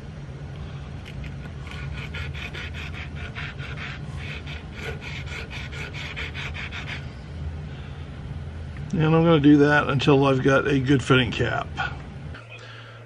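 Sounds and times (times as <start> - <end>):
sandpaper scraping metal: 1.6 - 7.0.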